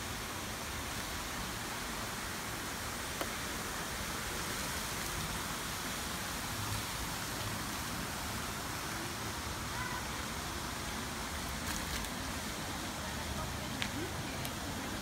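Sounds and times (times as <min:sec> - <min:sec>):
fountain water splashing into pool: 0:00.0 - 0:15.0.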